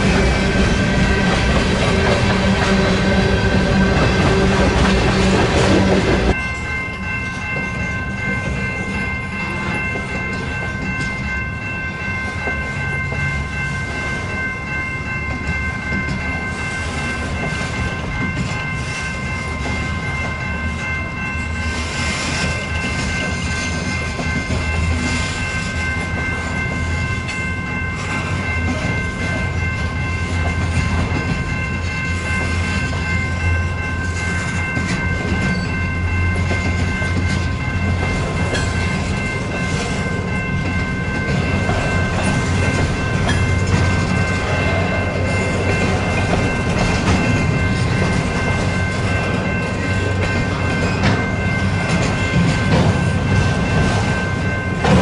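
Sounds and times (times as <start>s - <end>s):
high ringing tone: 0.0s - 55.0s
train wheels rumbling on rails: 0.0s - 55.0s
wheels clicking over rail joints: 34.0s - 55.0s.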